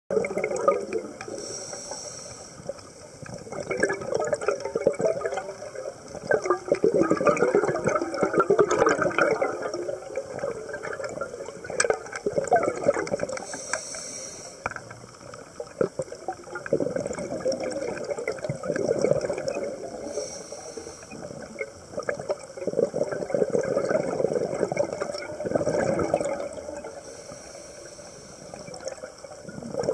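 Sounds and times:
exhaled bubbles underwater: 0:00.1 - 0:29.9
regulator inhalation hiss: 0:01.3 - 0:03.2, 0:13.4 - 0:14.8, 0:20.0 - 0:21.5, 0:26.9 - 0:28.9.

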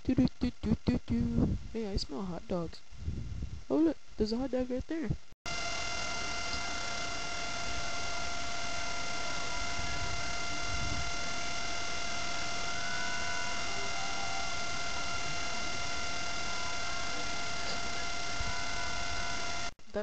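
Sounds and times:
high whine of constant tones: 0:00.0 - 0:20.0
electrical hiss: 0:05.5 - 0:20.0.

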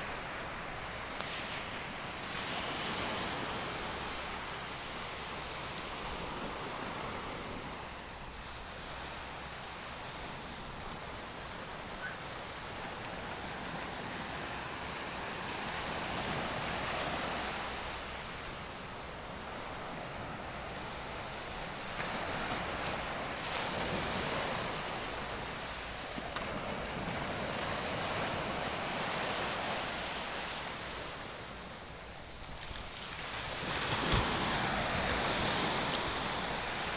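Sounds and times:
waves breaking on sandy beach: 0:00.0 - 0:36.9.

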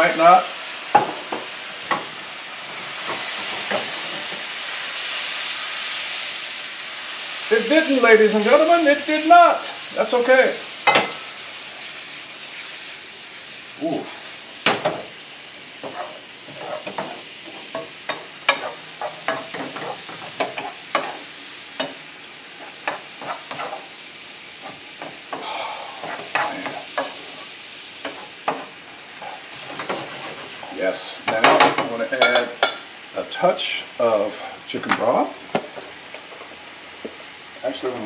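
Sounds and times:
fruit sizzling in a skillet: 0:00.0 - 0:38.0
wooden spoon scraping a pan: 0:15.8 - 0:31.4.

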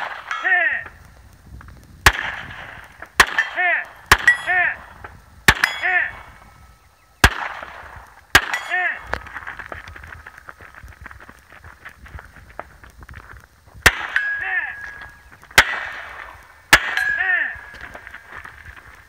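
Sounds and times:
rifle shots: 0:00.0 - 0:00.4, 0:02.0 - 0:06.3, 0:07.2 - 0:09.6, 0:13.8 - 0:18.8
distant steel target clanging: 0:02.1 - 0:06.4, 0:07.2 - 0:09.1, 0:13.9 - 0:18.5.

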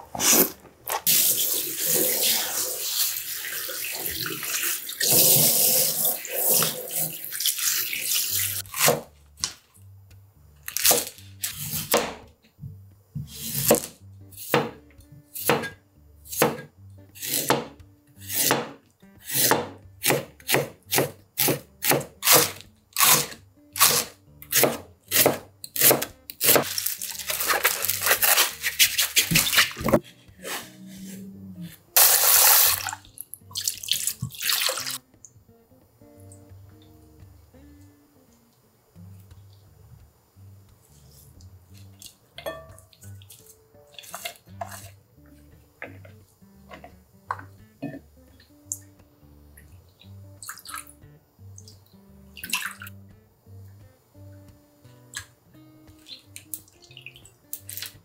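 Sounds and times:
tap water running into sink: 0:01.1 - 0:08.6, 0:33.6 - 0:35.0
knife slicing on plastic board: 0:19.3 - 0:30.7.

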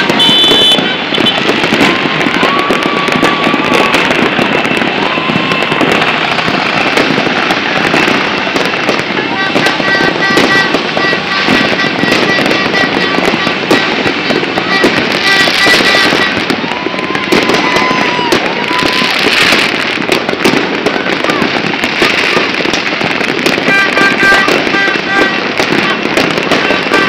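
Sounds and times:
fireworks crackling and banging: 0:00.0 - 0:27.0.

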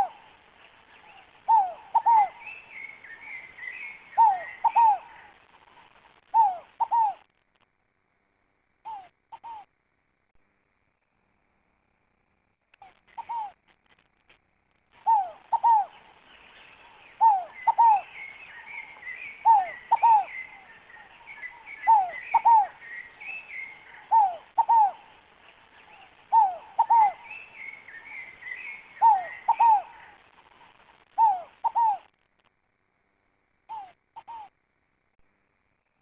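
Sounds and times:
dove cooing: 0:00.0 - 0:07.3, 0:08.8 - 0:09.7, 0:12.8 - 0:13.6, 0:15.0 - 0:16.2, 0:16.8 - 0:32.1, 0:33.7 - 0:34.5
small birds twittering: 0:00.0 - 0:07.3, 0:12.8 - 0:13.6, 0:14.9 - 0:32.2, 0:33.7 - 0:34.6.

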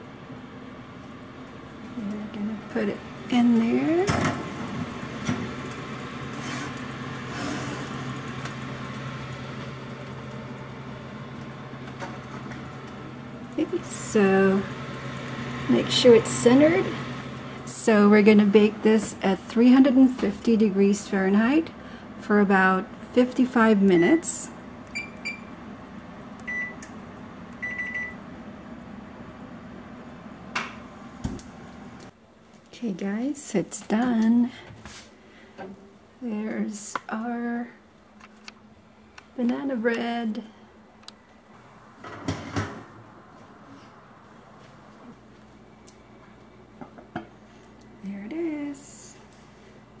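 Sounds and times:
kitchen appliance humming: 0:00.0 - 0:32.1
oven control panel beeps: 0:24.9 - 0:25.5, 0:26.4 - 0:26.9, 0:27.6 - 0:28.2.

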